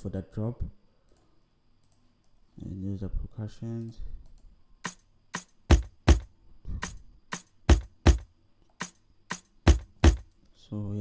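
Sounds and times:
percussion loop drum hits: 0:04.8 - 0:10.3.

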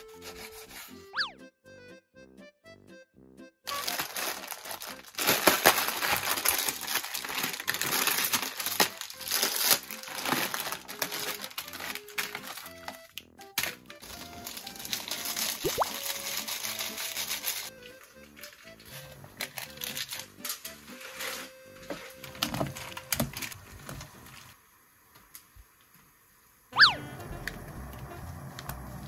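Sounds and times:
light background music: 0:00.0 - 0:23.6
plastic packets crinkling and tearing: 0:03.7 - 0:23.6.

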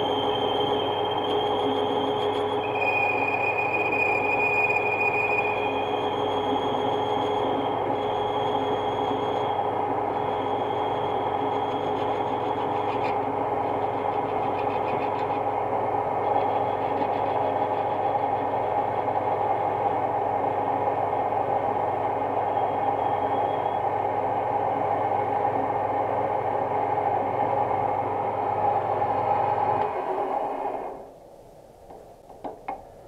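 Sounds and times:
metal lathe running: 0:00.0 - 0:20.6.

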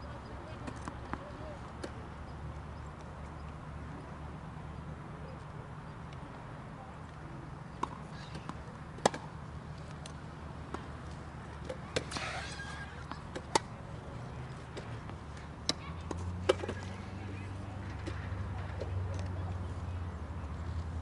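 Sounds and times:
racket striking tennis ball: 0:07.8 - 0:09.3, 0:15.7 - 0:17.0
tennis ball bouncing: 0:07.8 - 0:09.3, 0:11.6 - 0:13.7, 0:14.5 - 0:17.4.

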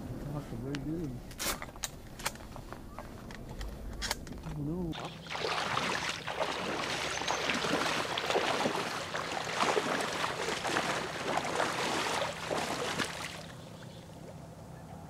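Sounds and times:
reeds rustling: 0:04.9 - 0:13.8
splashing steps in water: 0:04.9 - 0:13.9.

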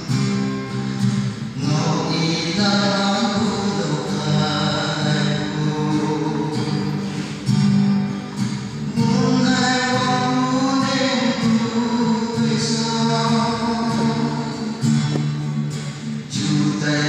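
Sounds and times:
guitar playing: 0:00.0 - 0:17.0
man singing into microphone: 0:01.5 - 0:07.3, 0:08.9 - 0:15.5, 0:16.3 - 0:17.0.

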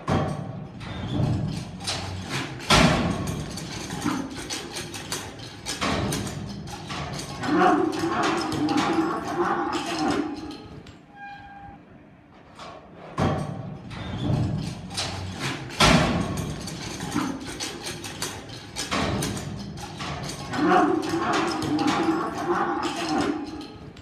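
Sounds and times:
bull bellowing: 0:07.2 - 0:10.7, 0:20.4 - 0:23.8.

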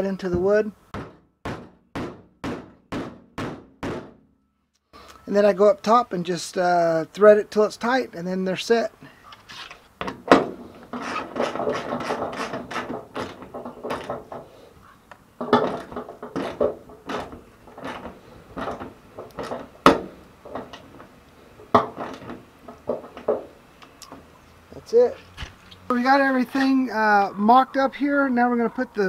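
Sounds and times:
sharp knock: 0:00.9 - 0:04.3.

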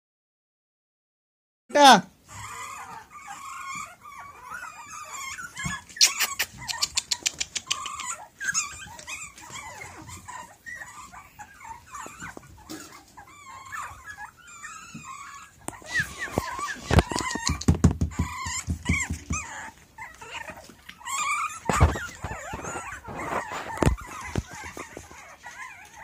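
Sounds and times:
puppies yipping and whining: 0:02.1 - 0:26.0
sharp clicks: 0:06.0 - 0:08.1.

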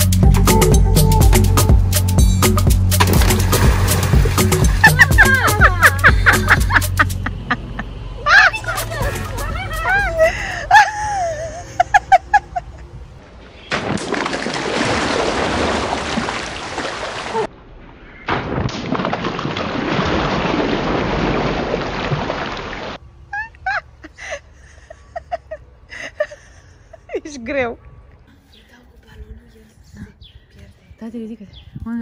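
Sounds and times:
water splashing and gushing: 0:03.0 - 0:05.4, 0:13.7 - 0:17.6, 0:18.3 - 0:23.0.

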